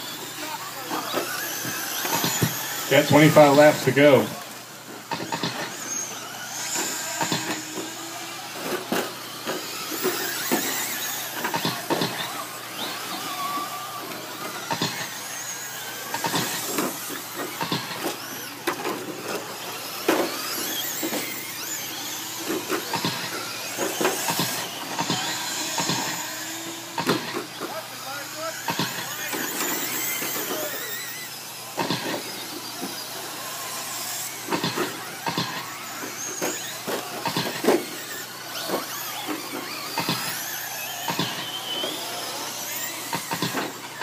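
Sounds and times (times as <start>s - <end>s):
electric motors whining: 0.0s - 44.0s
sharp clicks and knocks: 43.0s - 44.0s.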